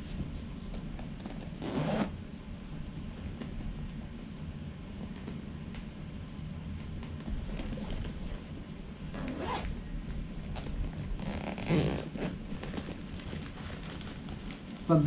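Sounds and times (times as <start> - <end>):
bag zipper rasping open: 1.2 - 2.2, 9.1 - 9.8, 10.5 - 13.1.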